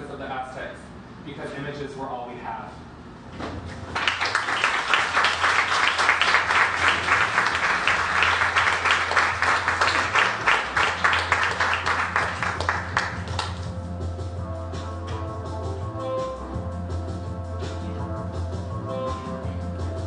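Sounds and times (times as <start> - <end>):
steady low hum: 0.0 - 20.0
audience applauding: 3.9 - 13.7.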